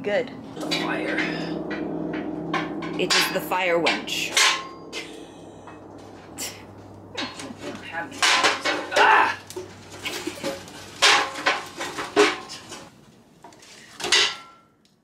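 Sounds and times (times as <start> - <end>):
fire poker scraping metal stove: 7.2 - 12.9.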